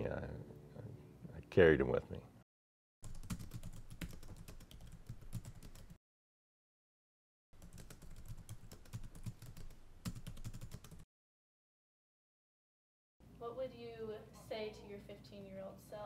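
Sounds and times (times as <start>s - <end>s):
computer keyboard typing: 3.0s - 6.0s, 7.6s - 11.1s.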